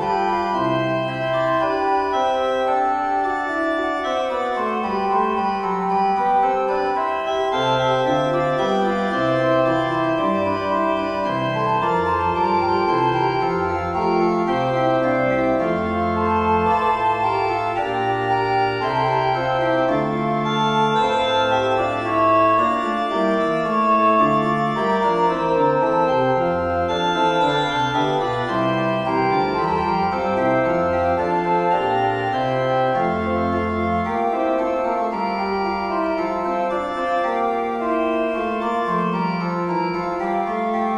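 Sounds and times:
organ fugue: 0.0s - 40.9s.

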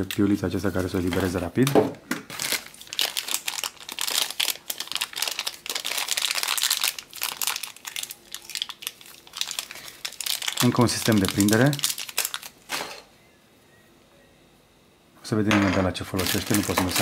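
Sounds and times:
plastic bag crinkling: 0.0s - 1.7s, 2.3s - 13.0s, 16.1s - 17.0s.

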